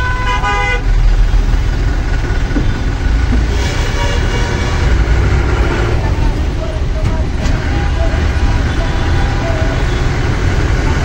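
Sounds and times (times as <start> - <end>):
vehicle horn: 0.0 - 0.9, 3.5 - 5.3
bus engine and road rumble: 0.0 - 11.0.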